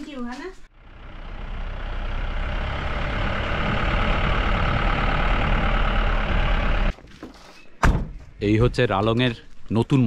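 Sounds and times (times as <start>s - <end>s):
jeep engine and road noise: 0.2s - 7.2s.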